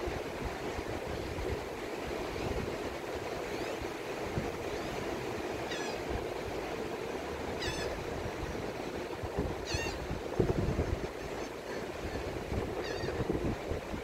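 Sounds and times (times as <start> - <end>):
surf rushing: 0.0 - 14.0
bird calling in high notes: 7.6 - 8.0.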